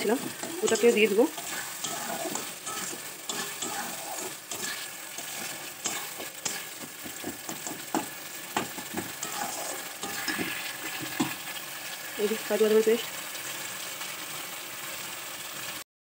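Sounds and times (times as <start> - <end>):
spatula scraping a pan: 0.0 - 11.4
food sizzling: 0.0 - 15.8.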